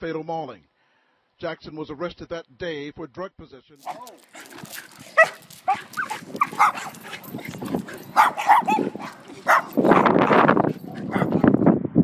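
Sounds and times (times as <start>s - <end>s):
dog yapping: 3.8s - 11.5s.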